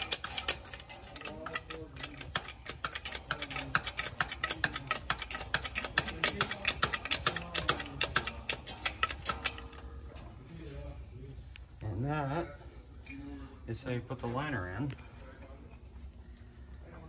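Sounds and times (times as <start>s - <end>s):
ratchet wrench clicking: 0.0s - 9.9s.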